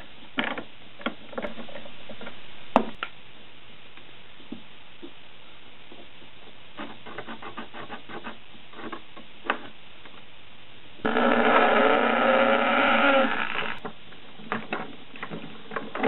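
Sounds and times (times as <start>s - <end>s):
cordless drill running: 11.0s - 13.8s
parts tapping and rubbing: 13.8s - 16.0s.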